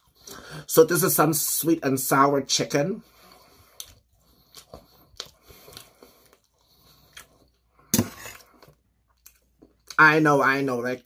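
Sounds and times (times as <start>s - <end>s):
person chewing food: 3.1s - 10.0s.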